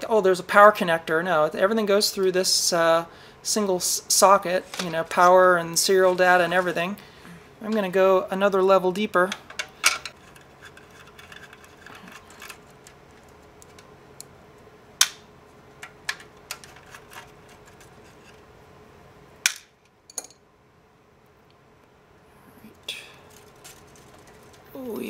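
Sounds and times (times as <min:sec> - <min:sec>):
handling scrapes: 0:16.6 - 0:18.5.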